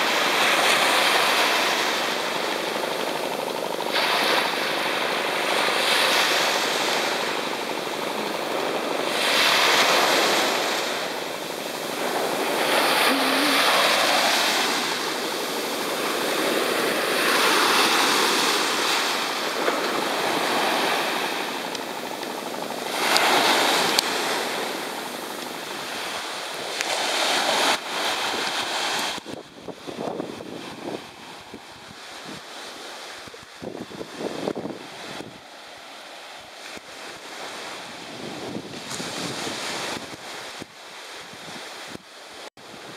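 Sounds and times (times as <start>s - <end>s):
small waves washing on beach: 0.0s - 42.9s.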